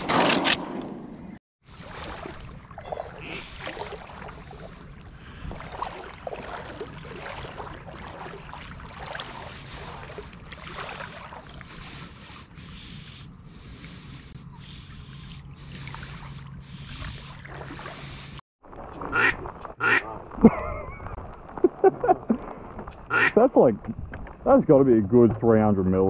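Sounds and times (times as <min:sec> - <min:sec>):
water sloshing and splashing: 0:01.6 - 0:26.0.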